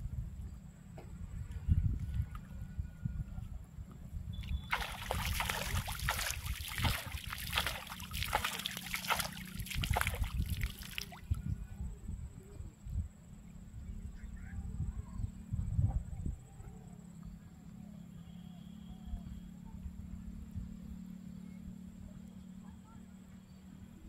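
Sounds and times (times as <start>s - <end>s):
shallow water splashing: 4.4s - 11.4s.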